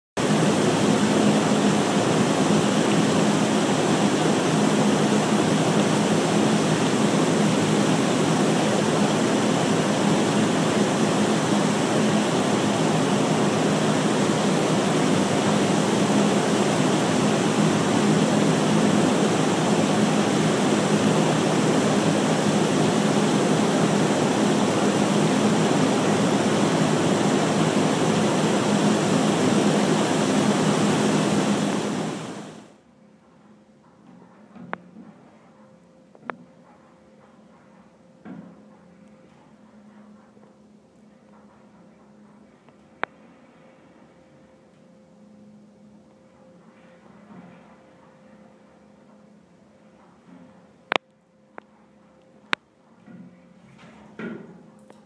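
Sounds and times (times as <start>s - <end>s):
rushing water: 0.2s - 32.7s
low pump hum: 0.2s - 32.8s.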